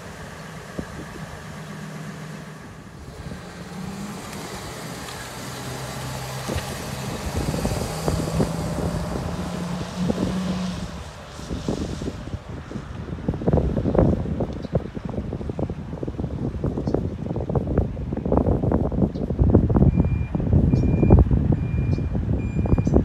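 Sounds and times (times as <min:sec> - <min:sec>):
truck engine accelerating past: 0:00.0 - 0:14.2.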